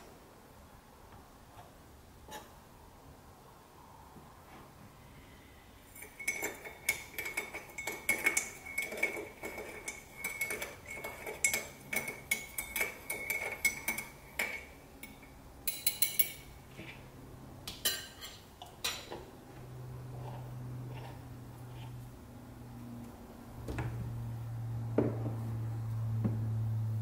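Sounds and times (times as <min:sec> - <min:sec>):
spoon clinking against mug: 0:06.0 - 0:16.4.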